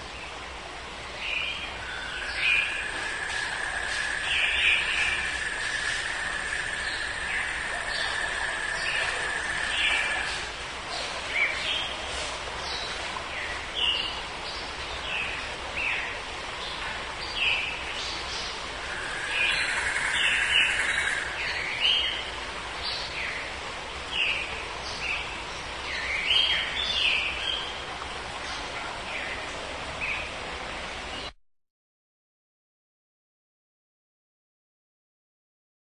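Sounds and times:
outdoor background hiss: 0:00.0 - 0:31.4
birds chirping and singing: 0:01.4 - 0:10.5, 0:18.4 - 0:22.2.

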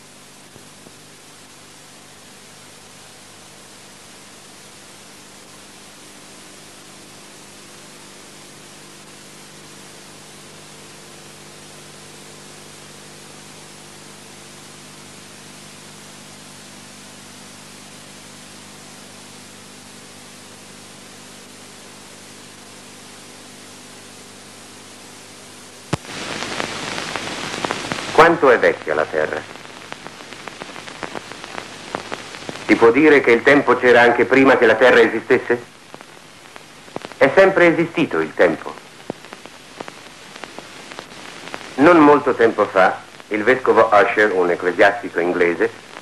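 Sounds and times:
film soundtrack hiss: 0:00.0 - 0:46.0.

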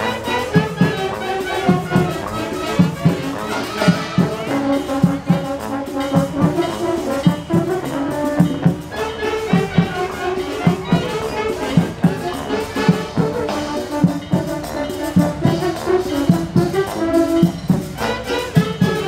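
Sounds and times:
brass instruments holding notes: 0:00.0 - 0:19.0
steady drum beat: 0:00.0 - 0:19.0.

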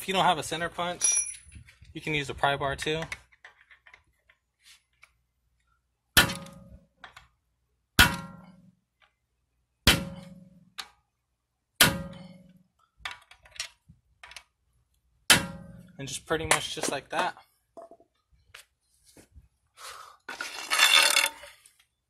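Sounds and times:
hammer striking metal punch: 0:08.0 - 0:08.6, 0:09.9 - 0:10.6, 0:11.8 - 0:12.5, 0:15.3 - 0:15.9.

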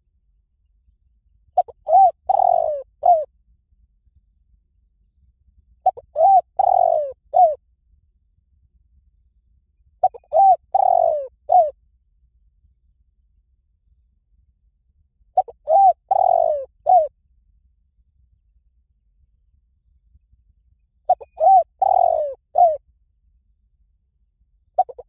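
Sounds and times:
dove cooing: 0:01.6 - 0:03.3, 0:05.8 - 0:07.6, 0:10.0 - 0:11.7, 0:15.4 - 0:17.1, 0:21.1 - 0:22.8, 0:24.8 - 0:25.0.

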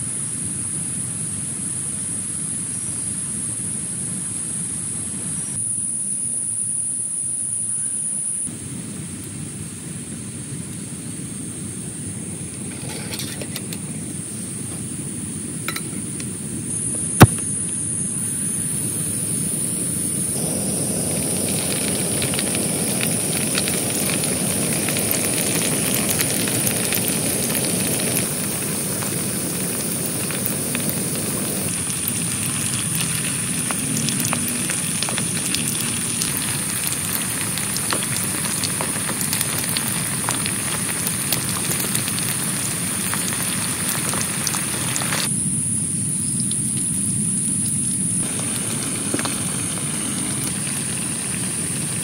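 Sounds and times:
heavy rain on a tent: 0:20.3 - 0:45.3, 0:48.0 - 0:52.0.

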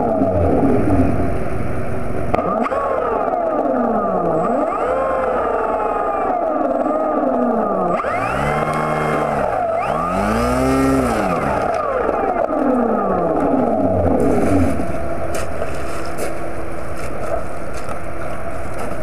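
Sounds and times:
model plane motor revving: 0:02.4 - 0:14.9
sharp clicks: 0:07.9 - 0:13.7.

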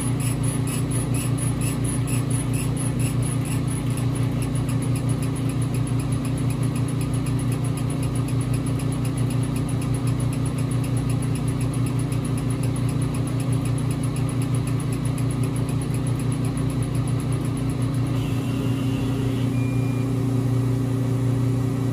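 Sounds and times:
steady machine hum: 0:00.0 - 0:06.5, 0:14.4 - 0:21.9.

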